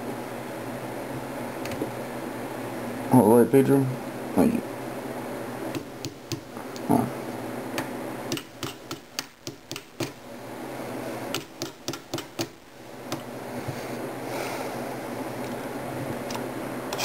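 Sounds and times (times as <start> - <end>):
hammer tapping metal pin punch: 8.3 - 10.2, 11.3 - 13.2.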